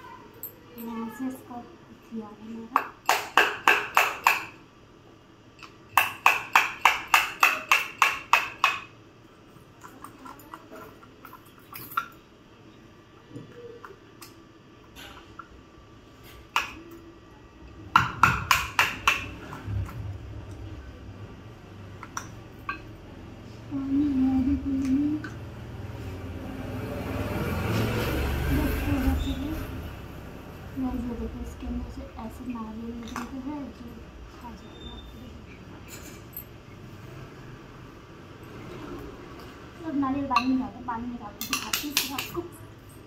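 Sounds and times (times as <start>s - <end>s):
woman humming: 23.7s - 25.4s.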